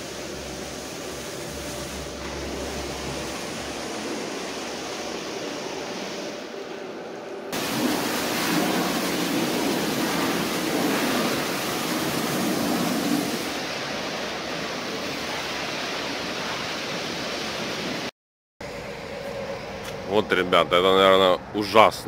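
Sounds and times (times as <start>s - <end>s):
water spray rushing: 0.0s - 6.4s, 7.5s - 18.1s.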